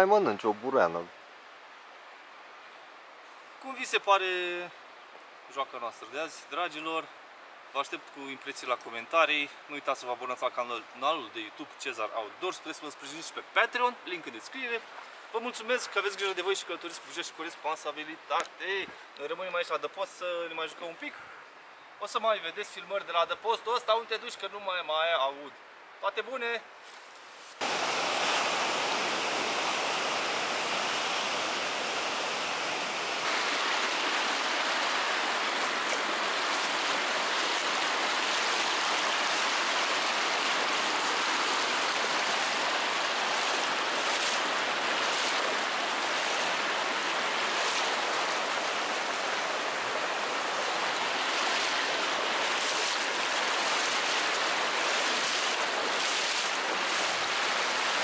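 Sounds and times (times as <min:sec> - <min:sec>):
river water rushing: 0:27.6 - 0:58.0
legs wading through water: 0:33.2 - 0:49.7, 0:50.7 - 0:58.0.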